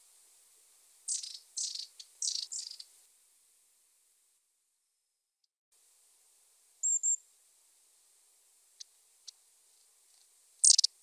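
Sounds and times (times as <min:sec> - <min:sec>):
high thin bird calls: 0:01.1 - 0:02.9, 0:06.8 - 0:07.2, 0:10.6 - 0:11.0
faint bird ticks: 0:01.1 - 0:03.0, 0:08.7 - 0:11.0.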